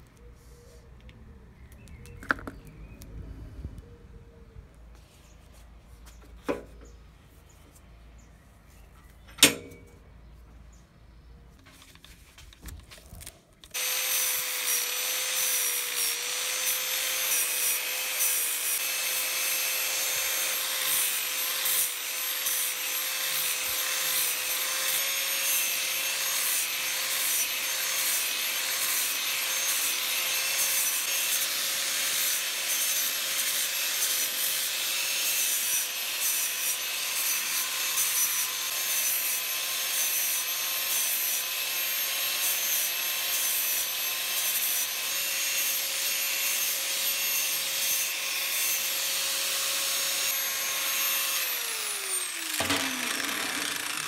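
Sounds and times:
angle grinder grinding wood: 13.7s - 54.0s.

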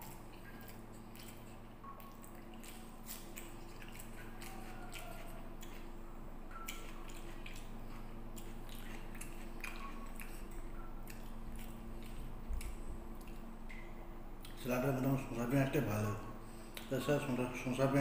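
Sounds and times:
fingers mixing rice: 0.0s - 6.0s
steady low hum: 0.0s - 18.0s
wet squishy chewing: 0.0s - 18.0s.

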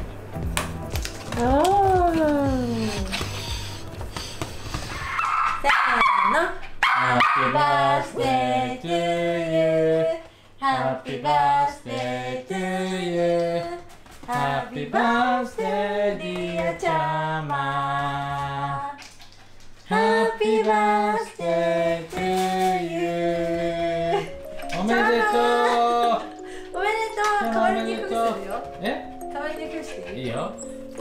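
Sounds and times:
person singing long notes: 1.4s - 3.5s, 7.6s - 19.0s, 19.9s - 26.8s.

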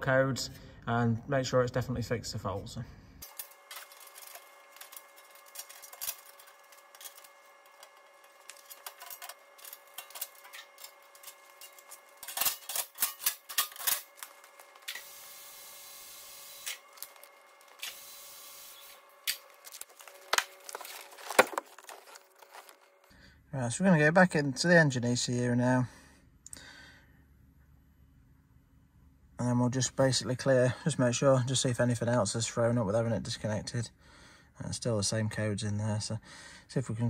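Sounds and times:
metallic clicks and clanks: 3.2s - 15.0s.

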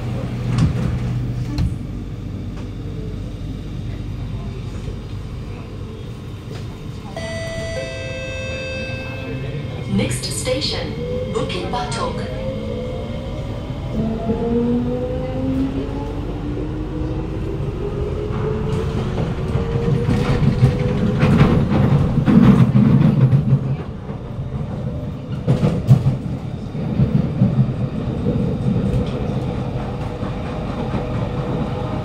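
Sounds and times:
wheels rumbling on rail: 0.0s - 32.0s
train traction motors whining: 5.7s - 14.6s.

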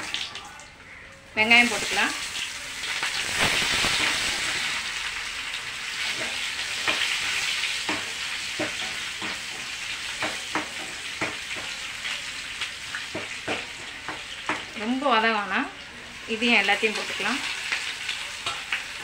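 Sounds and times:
onions sizzling in oil: 1.3s - 19.0s
ladle tapping pan: 6.1s - 11.8s.

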